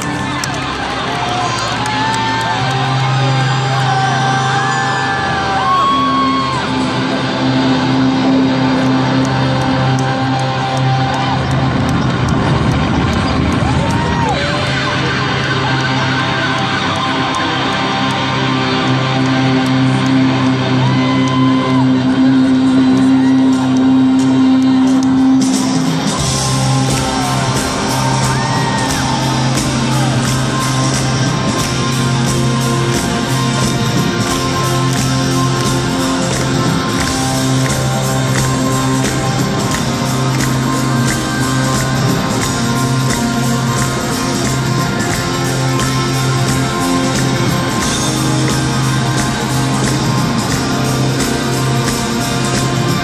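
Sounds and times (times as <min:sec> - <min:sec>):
rock band electric guitars: 0:00.0 - 0:53.0
steady drum beat: 0:25.1 - 0:53.0.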